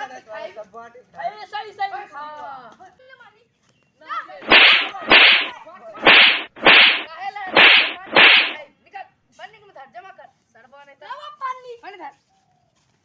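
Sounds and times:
whip cracks: 0:04.4 - 0:08.6.

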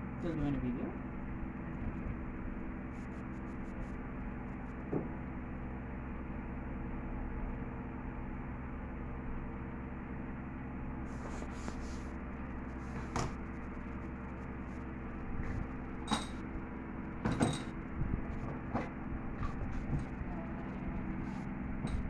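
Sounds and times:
steady hum: 0:00.0 - 0:22.0
handling rustles and knocks: 0:11.1 - 0:16.5, 0:17.2 - 0:22.0.

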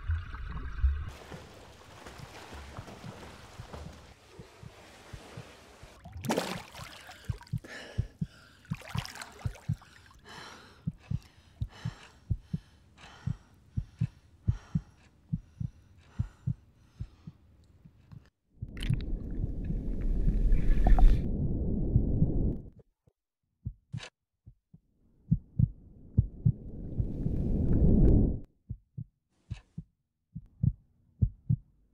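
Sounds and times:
loud underwater rumble: 0:00.0 - 0:01.2
heartbeat thuds: 0:07.3 - 0:09.9, 0:10.8 - 0:18.0, 0:23.6 - 0:27.2, 0:27.8 - 0:31.8
heavy panting breaths: 0:09.7 - 0:17.4.

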